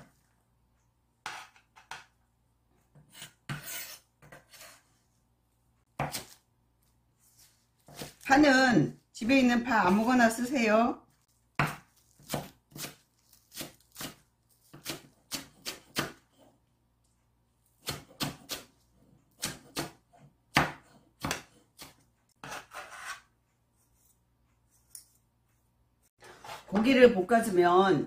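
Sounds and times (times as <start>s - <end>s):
knife scraping board: 1.2s - 2.1s, 2.9s - 5.0s, 20.8s - 25.1s, 26.2s - 26.8s
knife chopping on wooden board: 2.9s - 4.8s, 5.9s - 6.4s, 7.8s - 8.3s, 11.6s - 16.4s, 17.8s - 18.7s, 19.3s - 23.2s.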